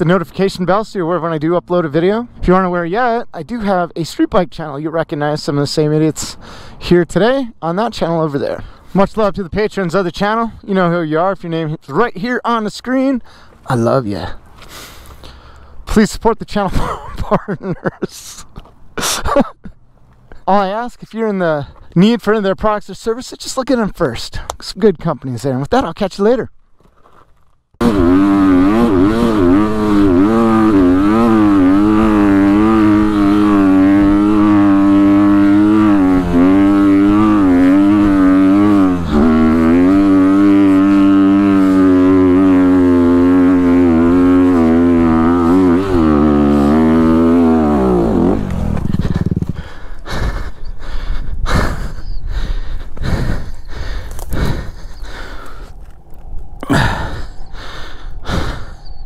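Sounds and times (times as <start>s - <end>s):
knocks and scrapes of bike falling: 26.7s - 27.6s
dirt bike engine revving: 27.8s - 50.6s.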